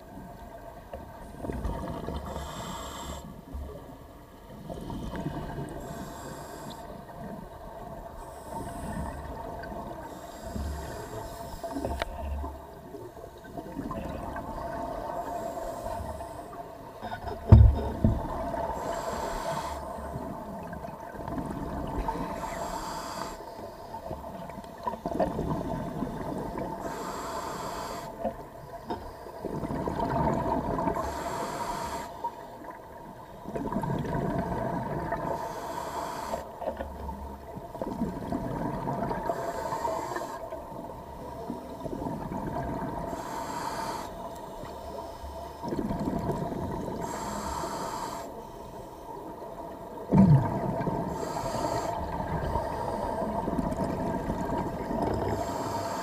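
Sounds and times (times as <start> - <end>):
regulator inhale hiss: 2.2 - 3.6, 5.1 - 7.4, 8.1 - 12.4, 15.0 - 16.7, 18.6 - 20.2, 22.2 - 24.2, 26.8 - 28.3, 30.8 - 32.7, 35.2 - 36.9, 39.2 - 40.6, 43.0 - 45.6, 46.8 - 49.4, 51.0 - 53.4, 55.0 - 56.0.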